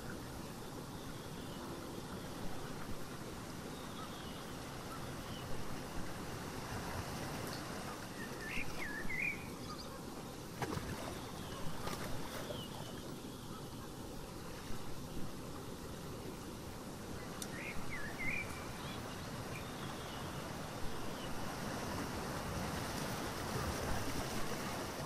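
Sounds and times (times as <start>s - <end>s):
ocean surf: 4.5s - 9.4s, 16.7s - 25.0s.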